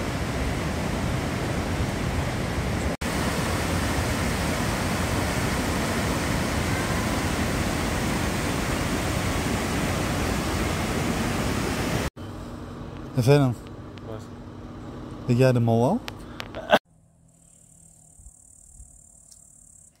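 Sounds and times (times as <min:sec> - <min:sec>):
white water rushing: 0:00.0 - 0:12.1.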